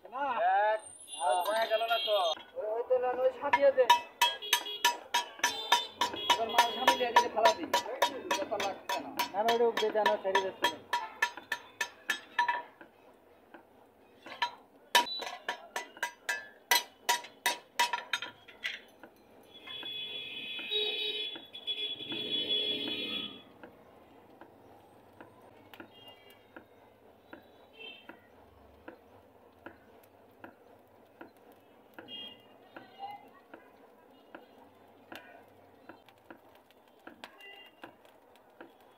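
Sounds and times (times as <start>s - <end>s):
hammer striking iron on anvil: 3.5s - 12.8s, 14.3s - 18.4s.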